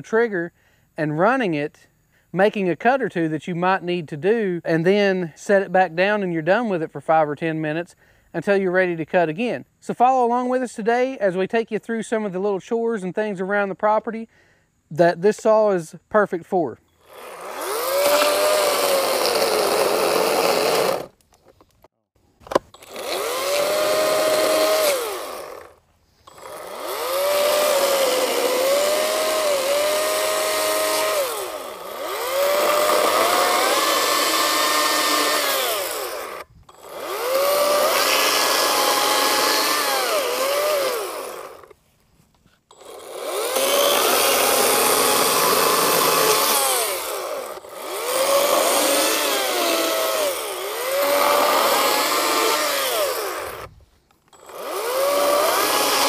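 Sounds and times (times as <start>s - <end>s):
electric chainsaw cutting wood: 17.0s - 21.2s, 22.4s - 41.8s, 42.7s - 56.0s.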